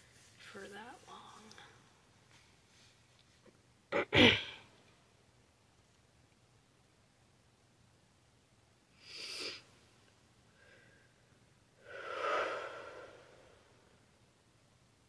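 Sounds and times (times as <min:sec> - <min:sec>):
person sniffing: 0:09.0 - 0:09.7, 0:11.8 - 0:13.7
person breathing: 0:10.5 - 0:14.0.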